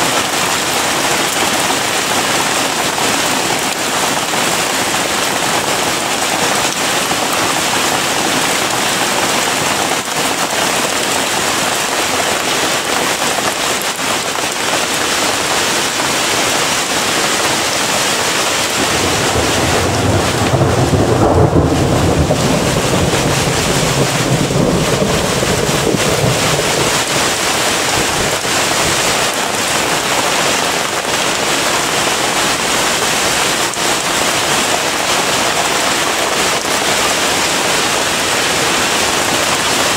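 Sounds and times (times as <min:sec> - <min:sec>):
hail striking car roof: 0:00.0 - 0:39.9
heavy rain hissing: 0:00.0 - 0:39.9
thunder rumbling: 0:18.7 - 0:30.0.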